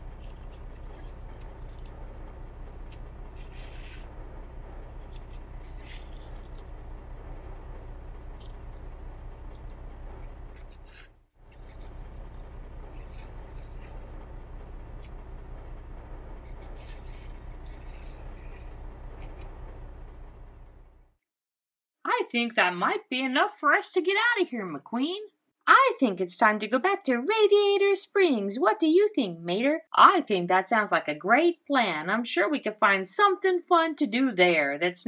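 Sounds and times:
steady low hum: 0.0s - 21.2s
toy trucks scraping through gravel: 3.4s - 4.0s, 16.4s - 19.4s.

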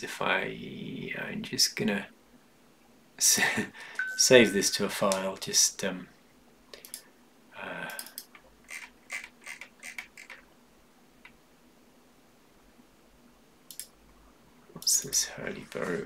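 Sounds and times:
computer mouse clicking: 6.7s - 7.0s, 7.9s - 10.4s, 13.7s - 14.0s.

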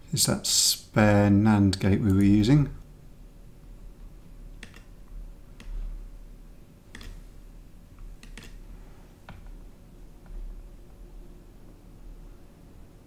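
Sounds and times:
faint low hum: 0.0s - 13.0s
mouse and keyboard clicks: 4.6s - 5.0s, 5.6s - 5.8s, 6.9s - 7.3s, 8.1s - 8.6s.

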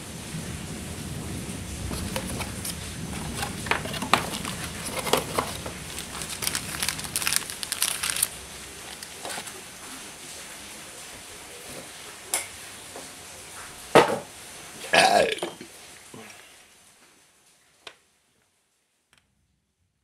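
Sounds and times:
cardboard box handled: 1.9s - 8.3s
plastic bags crinkling: 1.9s - 9.7s.

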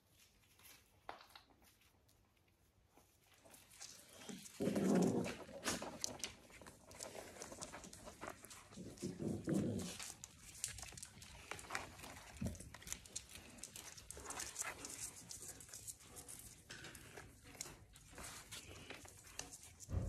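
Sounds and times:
puppy growling: 4.1s - 15.0s.

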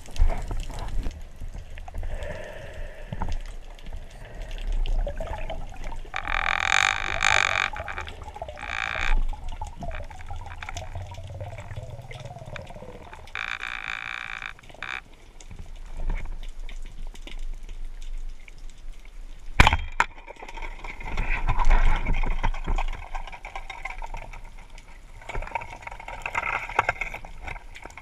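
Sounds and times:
underwater low rumble: 0.0s - 19.5s
noisy water bursts: 4.0s - 15.0s.

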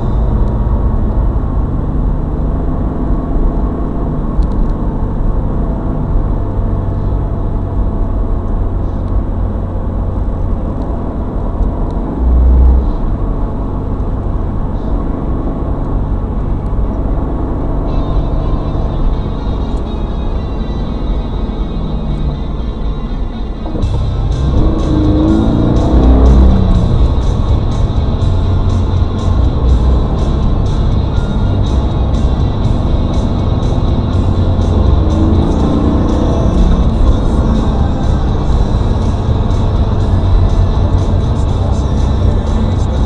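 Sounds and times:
music: 0.0s - 1.0s, 17.9s - 43.0s
car engine and tyre noise: 0.0s - 43.0s.

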